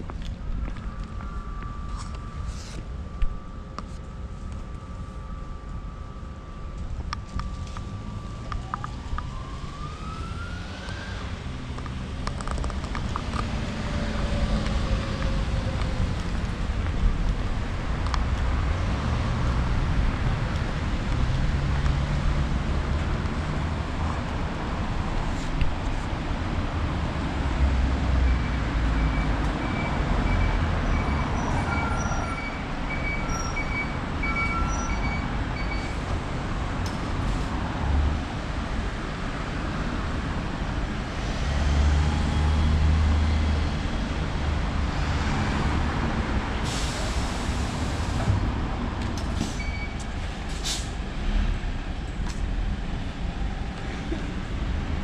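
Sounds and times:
road noise: 0:00.0 - 0:55.0
bus diesel engine running: 0:46.3 - 0:55.0.

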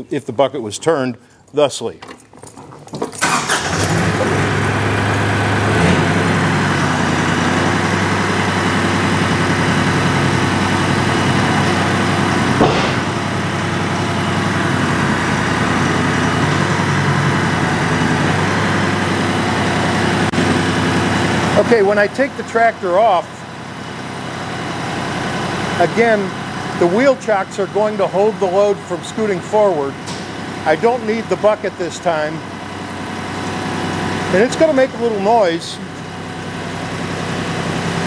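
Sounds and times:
tractor diesel engine idling: 0:03.2 - 0:38.0
clunk: 0:12.6 - 0:13.2, 0:30.0 - 0:30.4.

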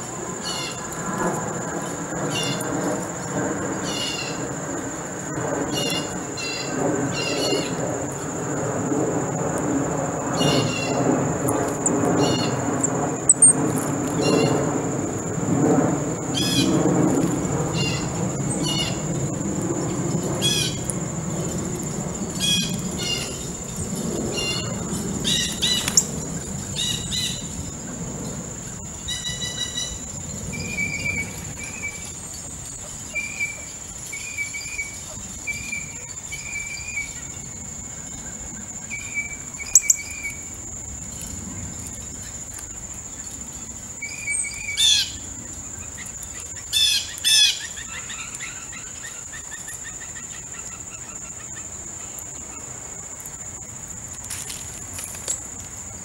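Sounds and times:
low background rumble: 0:00.0 - 0:46.7
high-pitched insect drone: 0:00.0 - 0:56.0
birds calling: 0:10.3 - 0:14.9, 0:17.6 - 0:37.4.

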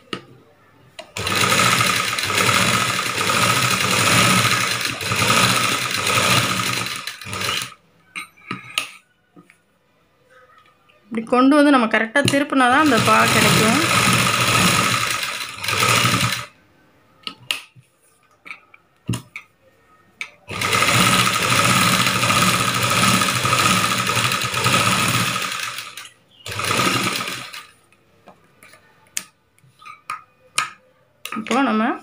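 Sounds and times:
sewing machine stitching: 0:01.1 - 0:07.8, 0:12.8 - 0:16.5, 0:20.5 - 0:27.7.

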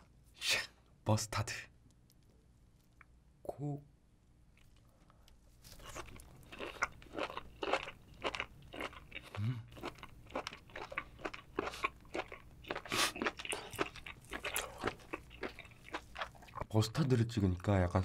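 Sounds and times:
wet chewing: 0:05.6 - 0:16.7
closed-mouth hum: 0:09.2 - 0:09.9.

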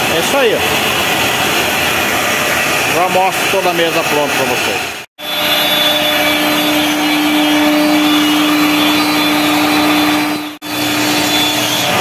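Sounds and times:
dust extractor rushing air: 0:00.0 - 0:12.0
router spindle humming: 0:05.2 - 0:12.0.

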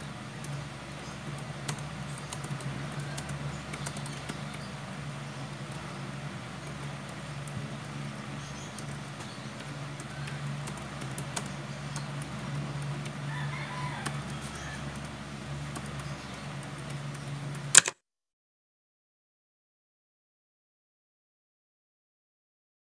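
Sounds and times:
keyboard key clicks: 0:17.8 - 0:18.0
sharp loud click: 0:17.8 - 0:18.0.

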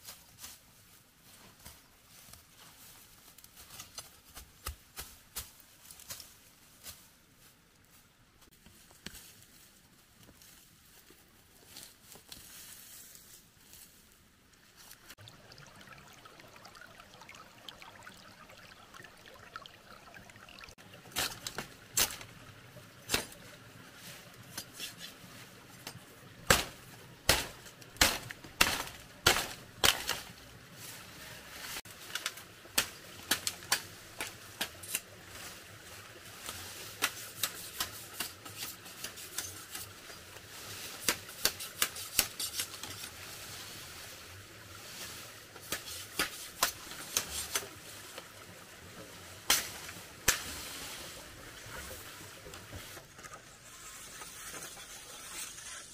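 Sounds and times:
faint hiss: 0:29.0 - 0:55.9.

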